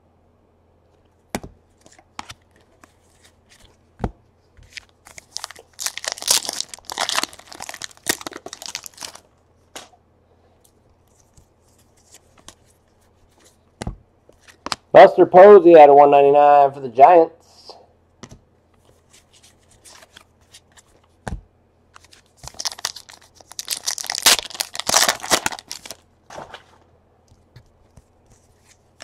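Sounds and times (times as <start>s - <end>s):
cards clicking and rustling: 1.7s - 3.8s, 4.6s - 9.2s, 18.2s - 21.1s, 21.9s - 29.0s
wrapper crinkling and tearing: 4.7s - 9.3s, 22.0s - 26.5s.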